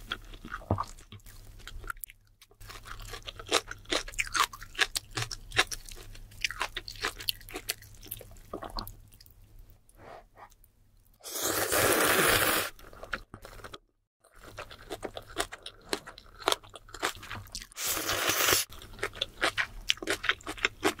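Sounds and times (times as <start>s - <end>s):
wet chewing and crunching: 0.0s - 9.5s, 12.8s - 21.0s
loud noodle slurping: 11.2s - 12.8s, 17.8s - 18.7s.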